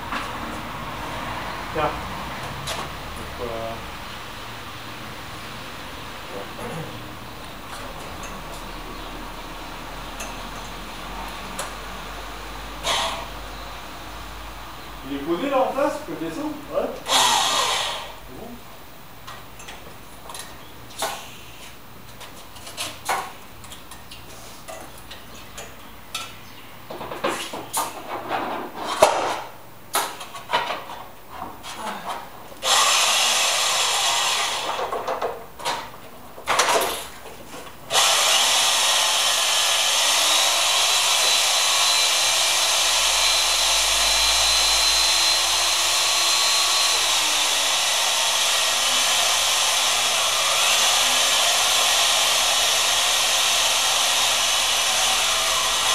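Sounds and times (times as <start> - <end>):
machine motor hissing: 37.9 - 55.9.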